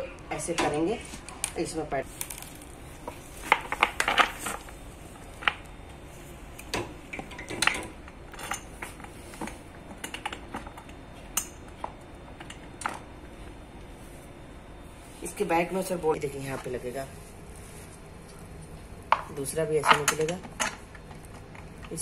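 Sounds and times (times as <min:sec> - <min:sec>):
clicks and knocks of metal parts: 0:19.8 - 0:22.0.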